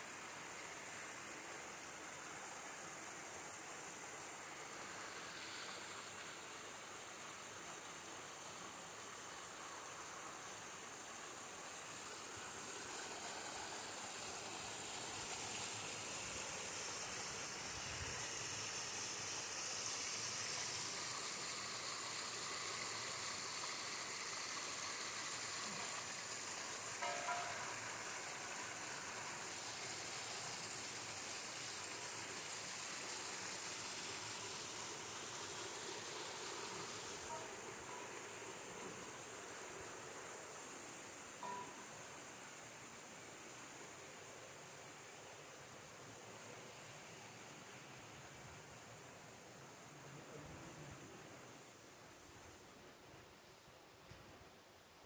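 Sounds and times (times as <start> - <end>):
waterfall splashing into pool: 12.0 - 40.9.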